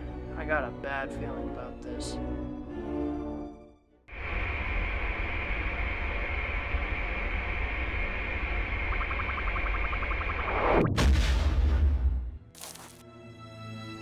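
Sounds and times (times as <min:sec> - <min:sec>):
spaceship engine hum: 0:04.1 - 0:10.9.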